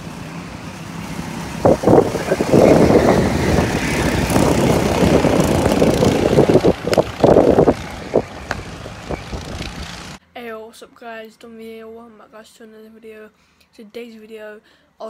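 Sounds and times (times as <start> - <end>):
go-kart engines racing: 0.0 - 10.2.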